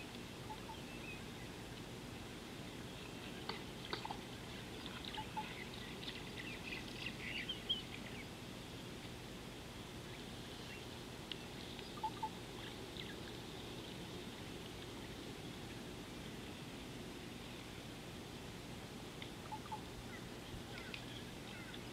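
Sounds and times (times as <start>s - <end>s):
low outdoor background hiss: 0.0s - 21.9s
small birds chirping: 0.4s - 1.8s, 2.6s - 8.3s, 10.0s - 17.8s, 19.3s - 21.9s.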